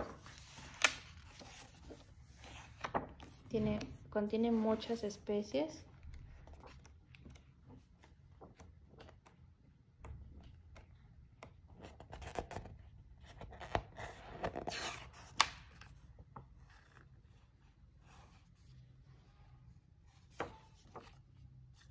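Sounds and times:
book pages flipping: 0:00.0 - 0:05.0, 0:05.9 - 0:09.5, 0:10.1 - 0:17.3, 0:20.2 - 0:21.9.

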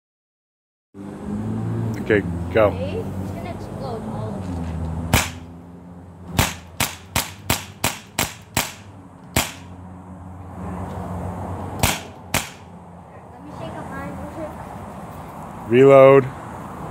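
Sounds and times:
bb gun shots: 0:05.1 - 0:05.5, 0:06.4 - 0:09.7, 0:11.8 - 0:12.7.

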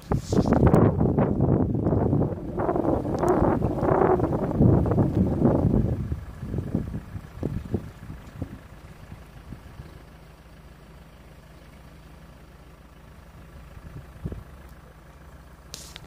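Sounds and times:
engine idling: 0:00.0 - 0:16.0.

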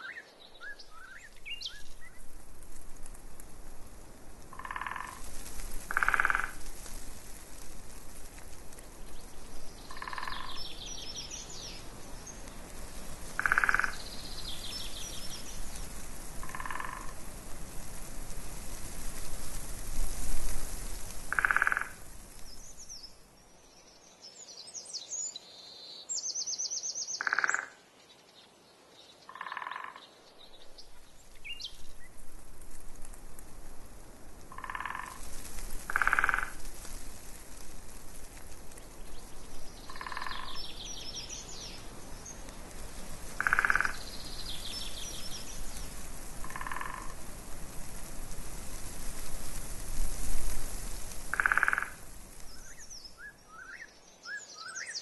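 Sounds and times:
wind gusting on microphone: 0:00.6 - 0:23.2, 0:30.4 - 0:53.6
short croaking calls: 0:04.5 - 0:05.2, 0:05.9 - 0:06.7, 0:09.9 - 0:10.8, 0:13.4 - 0:14.3, 0:16.4 - 0:17.2, 0:21.3 - 0:22.1, 0:27.1 - 0:27.8, 0:29.3 - 0:30.1, 0:34.5 - 0:35.2, 0:35.9 - 0:36.7, 0:39.8 - 0:40.8, 0:43.4 - 0:44.1, 0:46.4 - 0:47.2, 0:51.3 - 0:52.0.

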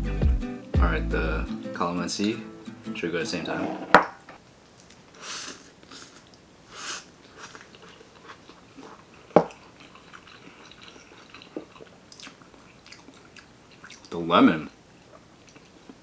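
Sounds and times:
soft chewing: 0:04.6 - 0:14.2, 0:14.9 - 0:16.0
short hissing sounds: 0:05.2 - 0:07.1.

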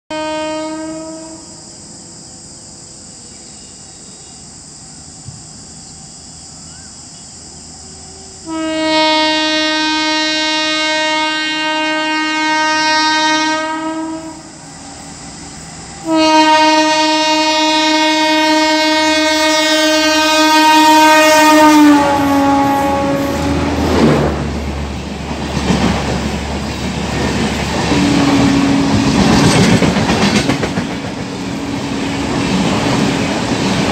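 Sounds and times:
train horn blasts: 0:00.1 - 0:01.8, 0:07.8 - 0:14.6, 0:16.0 - 0:24.8, 0:27.9 - 0:29.6
train coaches rumbling and clacking: 0:02.0 - 0:08.6, 0:13.8 - 0:33.9.

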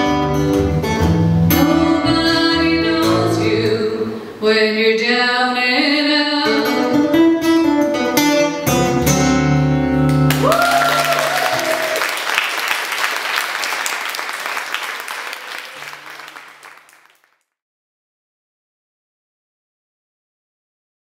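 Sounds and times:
electric bass: 0:00.0 - 0:04.1, 0:08.7 - 0:10.5
acoustic guitar: 0:00.0 - 0:05.1, 0:05.7 - 0:10.4
audience applause: 0:10.1 - 0:17.4.

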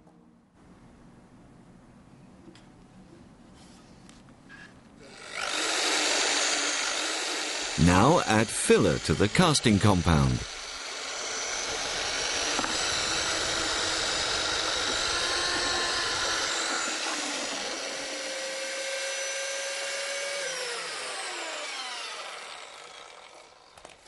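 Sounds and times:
electric drill mixer running: 0:05.1 - 0:24.0.

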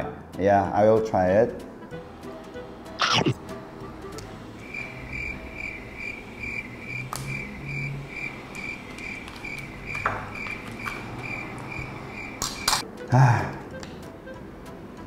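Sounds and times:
cricket chirping: 0:04.6 - 0:12.8.

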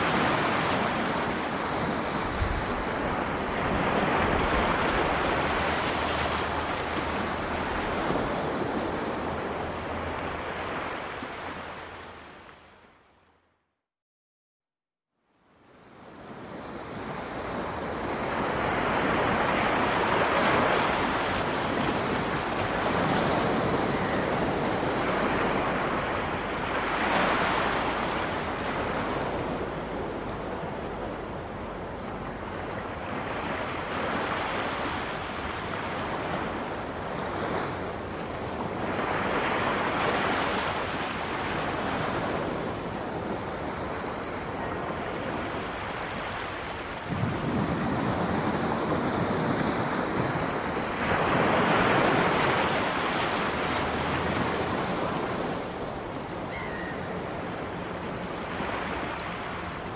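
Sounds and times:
sea waves breaking on shore: 0:00.0 - 0:13.0, 0:15.6 - 0:59.9.

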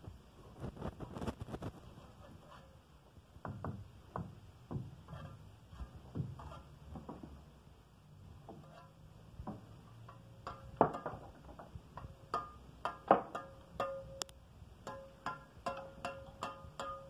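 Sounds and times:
trowel tapping on bricks: 0:09.5 - 0:17.0.

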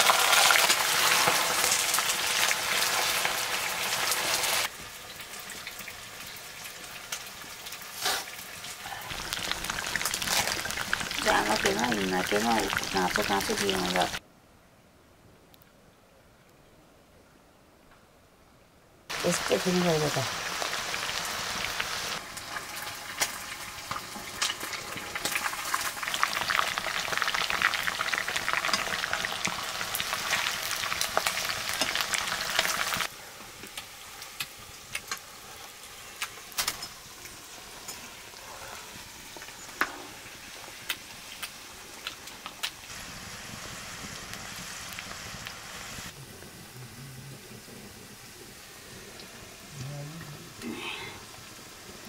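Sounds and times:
food sizzling in hot oil: 0:00.0 - 0:14.2, 0:19.1 - 0:46.2, 0:50.7 - 0:52.0
oil popping: 0:09.1 - 0:14.2.

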